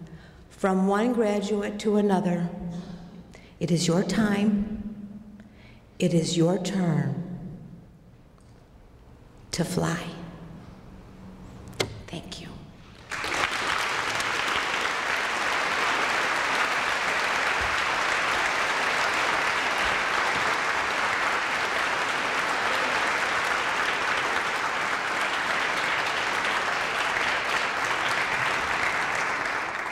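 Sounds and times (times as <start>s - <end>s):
large audience applauding: 13.0s - 29.9s.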